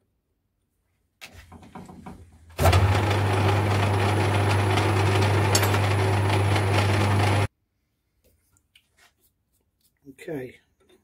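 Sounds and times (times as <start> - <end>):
metal lathe cutting: 2.6 - 7.5
faint handling sounds: 7.8 - 11.0.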